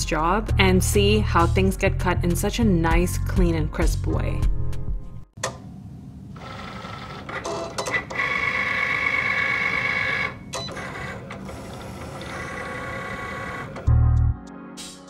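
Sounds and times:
cutting machine motors whining: 6.4s - 13.9s.

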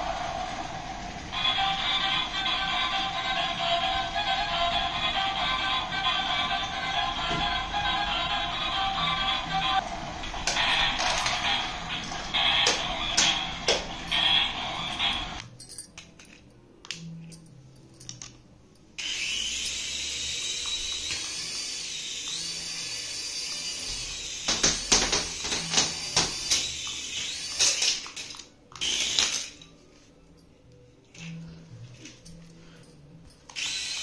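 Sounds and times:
small electric motor whining: 19.0s - 28.2s, 33.5s - 34.0s.

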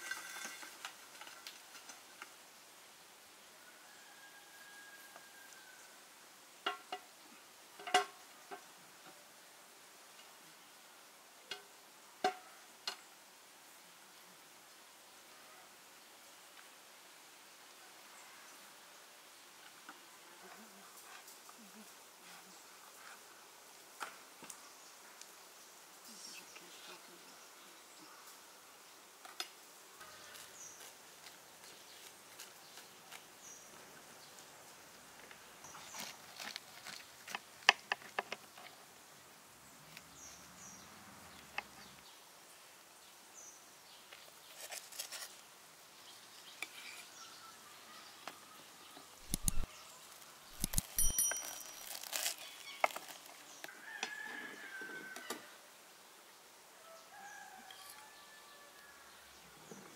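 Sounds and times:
sharp clicks and knocks: 49.2s - 49.7s, 50.6s - 51.6s.

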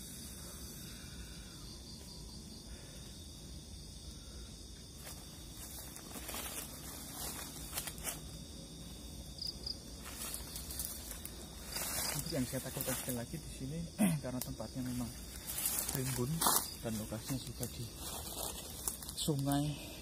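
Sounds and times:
night insects chirping: 0.0s - 20.0s
leaves rustling: 4.8s - 13.7s, 14.4s - 20.0s.

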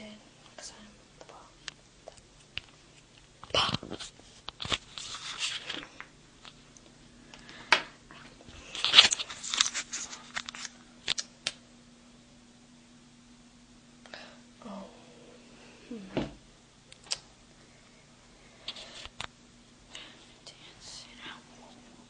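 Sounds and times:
faint steady hum: 0.0s - 22.0s
rustling and scraping: 2.7s - 6.6s, 7.5s - 11.2s.

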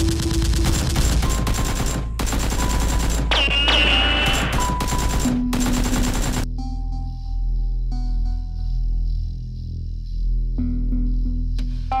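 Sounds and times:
machine-gun fire: 0.0s - 6.5s
music: 0.0s - 12.0s.

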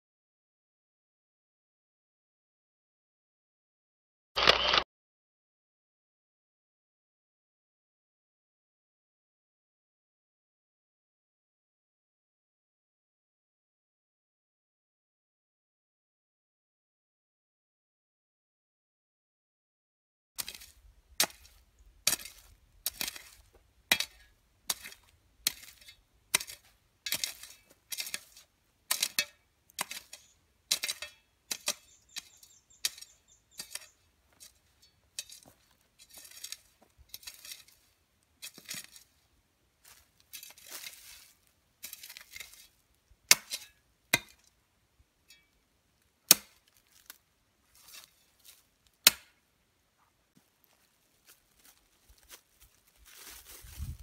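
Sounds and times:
hoe chopping into soil: 20.4s - 34.6s, 43.3s - 44.4s, 46.3s - 46.6s, 49.0s - 49.4s
scraping of earth and leaves: 20.4s - 44.5s, 46.4s - 49.0s, 50.4s - 54.0s
blade clinking on stones: 22.1s - 37.8s.

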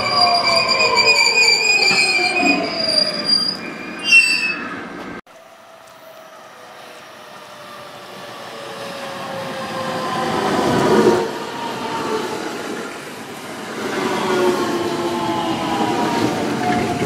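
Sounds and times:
train wheels rumbling: 5.9s - 17.0s.

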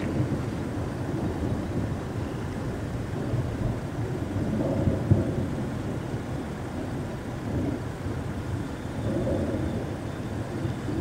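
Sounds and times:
thunder rumbling: 0.0s - 11.0s.

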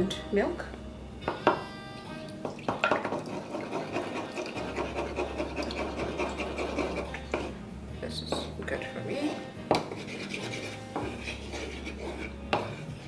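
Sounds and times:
spatula scraping in a bowl: 2.9s - 7.6s, 9.1s - 13.0s.

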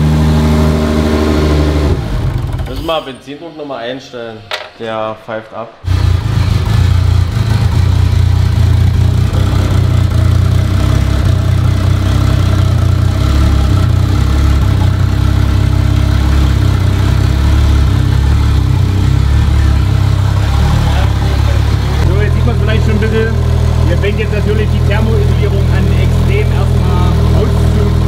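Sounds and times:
car engine idling: 5.9s - 28.0s.

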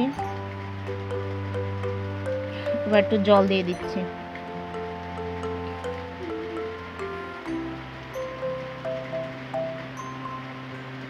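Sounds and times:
sustained chords: 0.0s - 11.0s.

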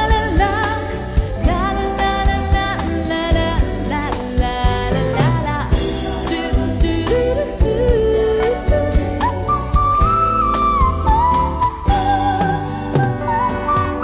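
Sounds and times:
pop ballad with singing: 0.0s - 14.0s.

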